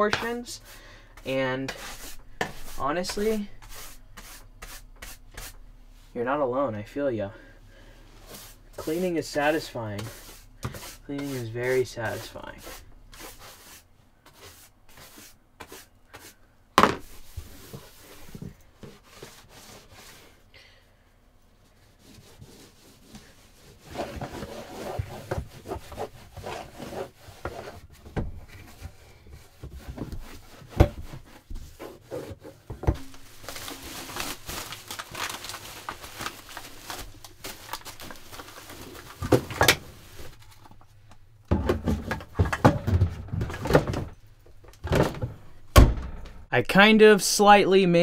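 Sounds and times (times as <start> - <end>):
paper towel scrubbing floor: 8.2 - 16.4, 17.1 - 20.4, 22.0 - 28.0, 28.7 - 40.4
paper and plastic rustling: 23.2 - 40.9
cabinet doors thudding: 44.8 - 46.4.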